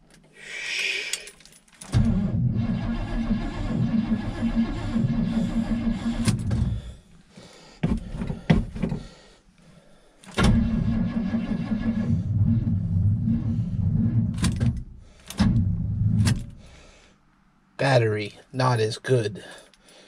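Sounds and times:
starter motor cranking engine: 1.9 - 6.8, 10.3 - 15.6.

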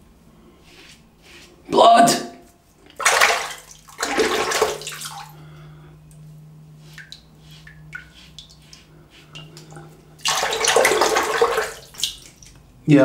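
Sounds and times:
water dripping: 6.9 - 12.6.

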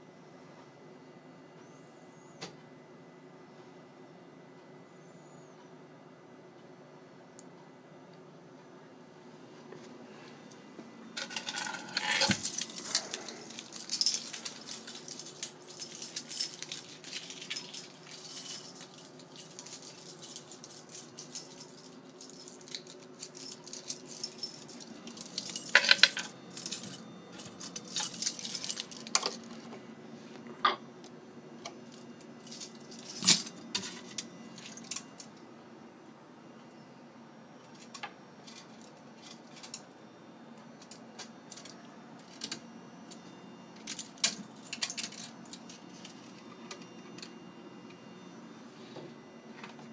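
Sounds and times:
steady low hum: 0.0 - 49.9
coins clattering: 11.2 - 29.5, 32.4 - 35.1, 43.8 - 47.3.

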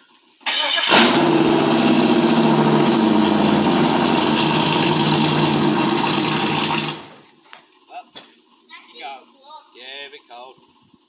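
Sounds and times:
car engine starting and idling: 0.4 - 7.3.

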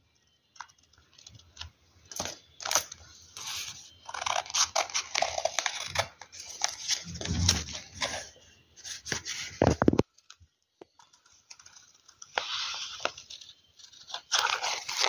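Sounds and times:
paper crinkling: 0.6 - 15.0
scissors snipping paper: 4.0 - 6.8, 13.9 - 15.0.

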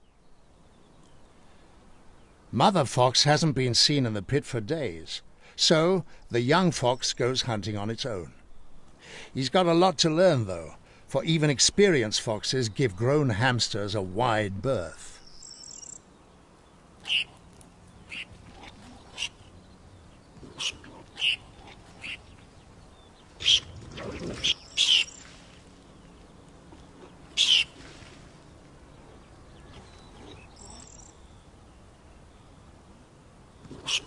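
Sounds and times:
hamster screeching: 23.4 - 23.7.

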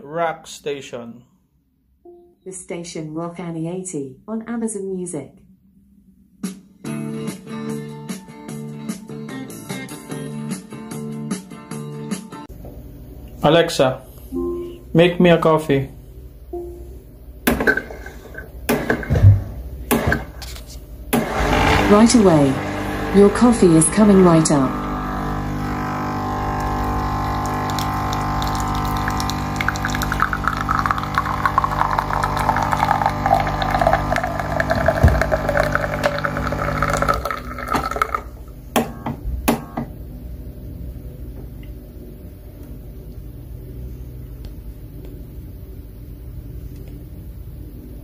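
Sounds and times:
coffee machine pump humming: 21.1 - 40.0
coffee pouring into a mug: 25.4 - 38.4
faint low hum: 38.0 - 48.0.

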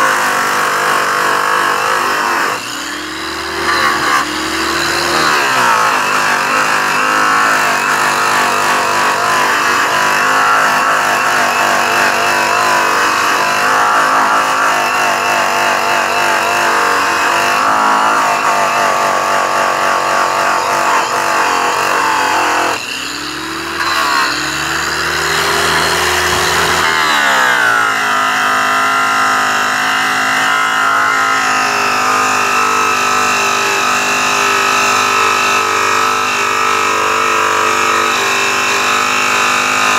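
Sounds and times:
electric polisher motor whine: 0.0 - 39.9.

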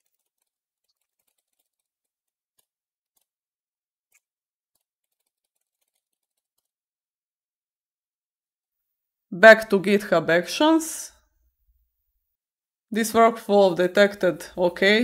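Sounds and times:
faint keyboard typing: 0.0 - 3.3, 4.1 - 6.8.

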